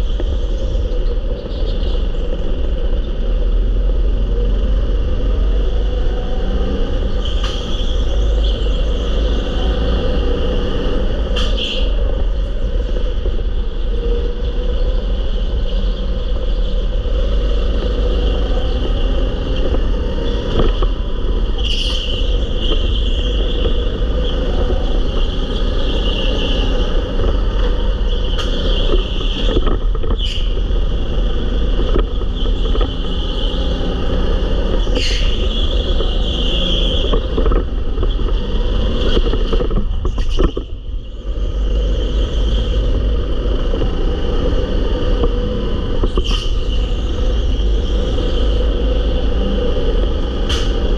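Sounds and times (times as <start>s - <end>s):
go-kart motor: 0.0s - 50.9s
low rumble of vibration and wind: 0.0s - 50.9s.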